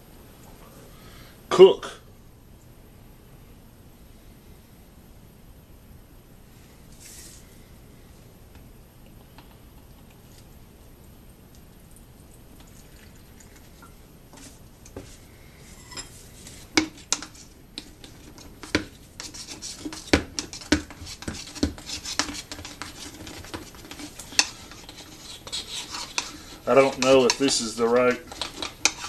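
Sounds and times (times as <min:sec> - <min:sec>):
rod scraping: 0:15.6 - 0:29.0.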